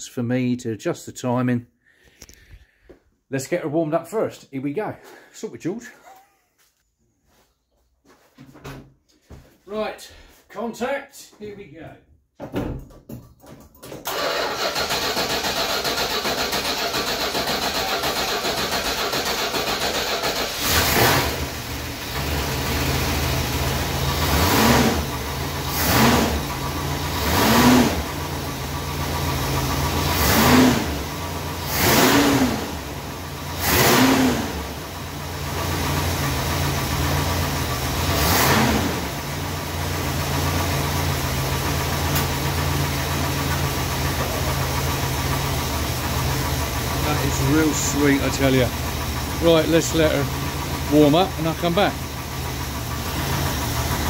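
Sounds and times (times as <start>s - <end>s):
engine cranking and starting: 13.6s - 23.0s
engine idling: 14.1s - 54.0s
engine revving: 14.1s - 54.0s.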